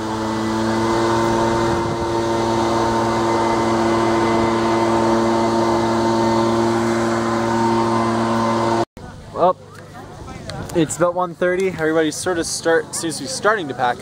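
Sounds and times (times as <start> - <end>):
mechanical engine drone: 0.0 - 8.9.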